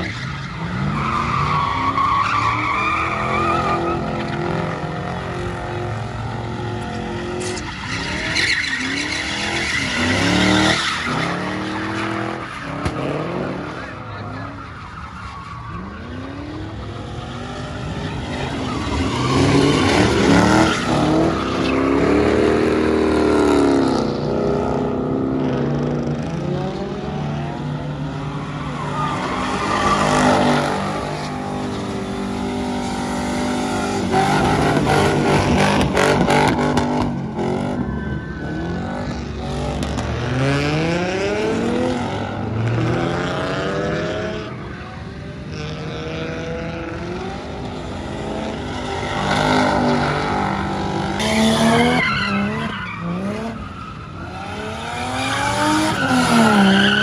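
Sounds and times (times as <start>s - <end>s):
tyre squeal: 0.0s - 4.4s, 6.5s - 22.1s, 27.9s - 35.0s, 48.8s - 57.0s
car engine revving: 45.6s - 57.0s.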